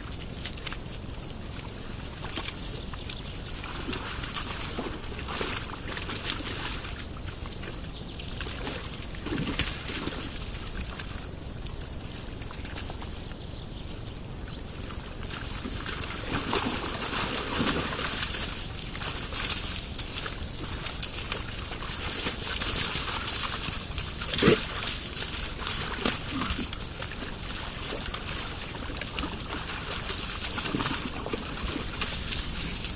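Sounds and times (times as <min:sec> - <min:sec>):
wet mud squelching and sloshing: 0:00.0 - 0:13.4, 0:14.5 - 0:32.9
wild boar grunting: 0:24.2 - 0:24.8, 0:25.5 - 0:28.2.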